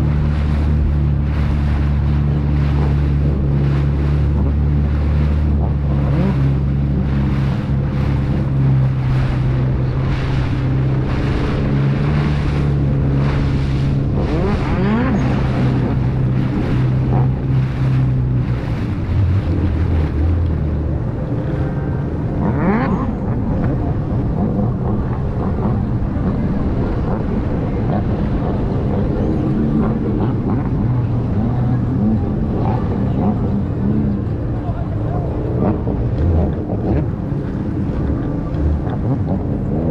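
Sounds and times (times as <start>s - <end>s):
motorboat engine running: 0.0s - 39.9s
water noise: 0.0s - 39.9s
wind: 0.0s - 39.9s.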